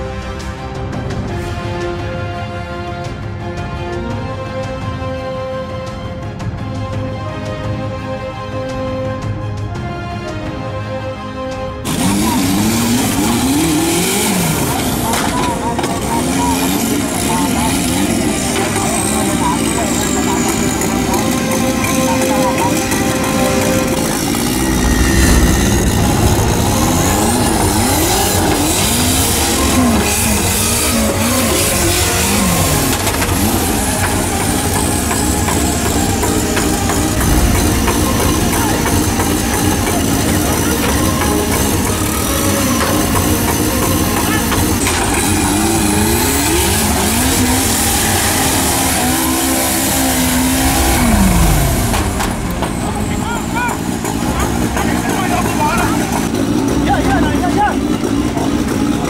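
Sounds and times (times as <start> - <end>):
buggy engine revving hard: 11.8 - 59.0.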